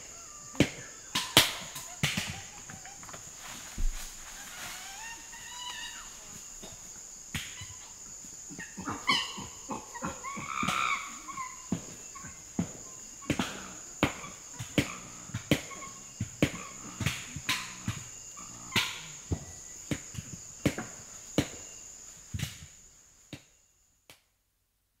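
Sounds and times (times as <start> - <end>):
chimpanzee calls: 0.0 - 3.7, 4.3 - 6.5, 7.4 - 19.5
high insect drone: 0.0 - 24.0.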